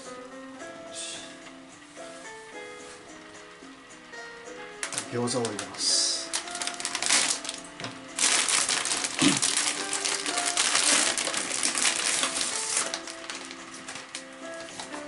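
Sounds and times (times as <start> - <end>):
soft background music: 0.0 - 15.0
plastic packaging crinkling: 4.8 - 15.0.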